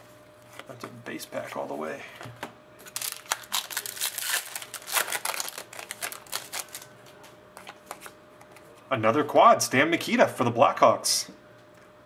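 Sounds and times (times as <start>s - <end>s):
foil wrapper crinkling and tearing: 2.8s - 6.9s.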